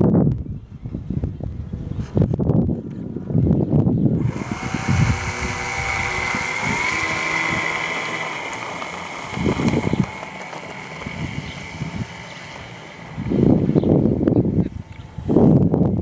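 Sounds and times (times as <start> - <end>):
wind buffeting on microphone: 0.0 - 16.0
model plane motor whining: 3.9 - 16.0.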